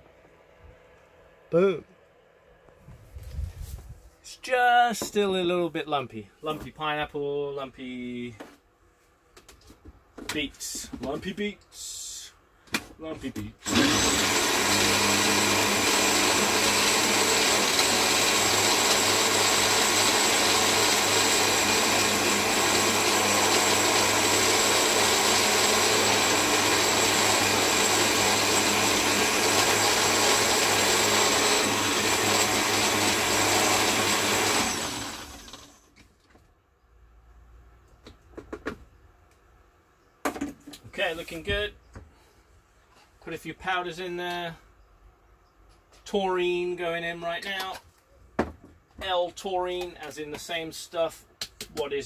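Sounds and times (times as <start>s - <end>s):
blender motor running: 13.6s - 35.9s.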